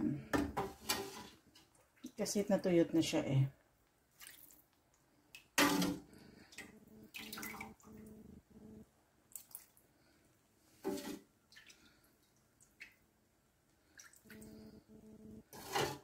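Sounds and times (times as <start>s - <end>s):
thick sauce pouring and splashing: 9.3s - 9.8s.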